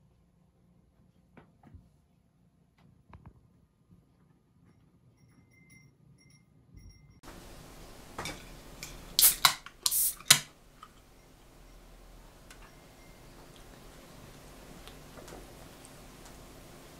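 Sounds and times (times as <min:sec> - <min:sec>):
fizzing hiss of gas: 0:07.3 - 0:10.5
drink can pull tab clicks: 0:08.8 - 0:10.5.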